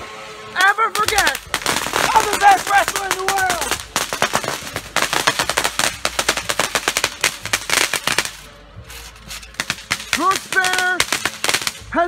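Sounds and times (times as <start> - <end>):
sharp cracks and pops: 0.9 - 8.4, 9.5 - 11.9.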